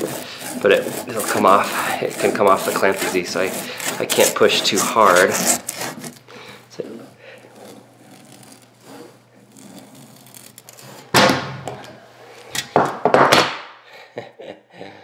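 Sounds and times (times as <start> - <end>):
hand saw rasping strokes: 0.0 - 11.1
saw scraping rubber ball: 0.0 - 12.5.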